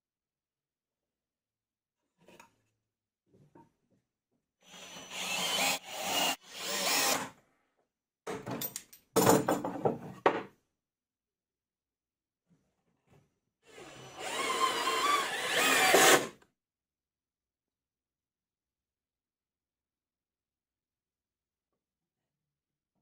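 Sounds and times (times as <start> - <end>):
cordless drill driving screws: 4.6 - 7.3, 13.7 - 16.3.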